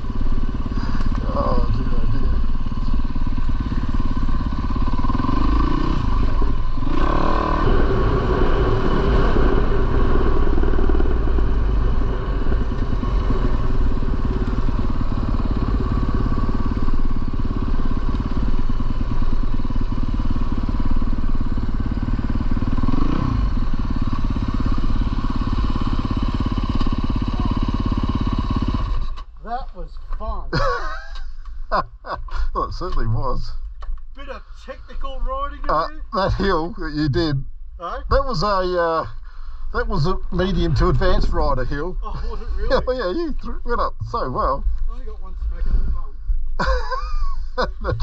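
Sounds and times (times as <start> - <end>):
dirt bike engine revving: 0.0 - 29.2, 39.2 - 44.6.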